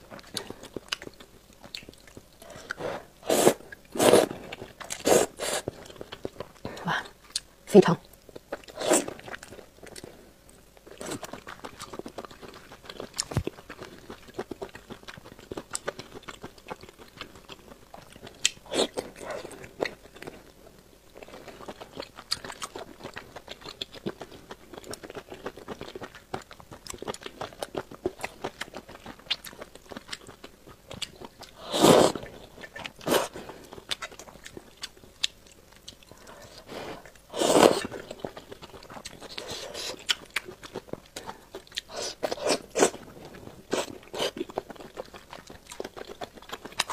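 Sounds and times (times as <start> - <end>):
person chewing food: 0.0 - 46.9
slurping: 2.5 - 4.3, 4.9 - 5.7, 31.6 - 32.2, 36.5 - 38.0.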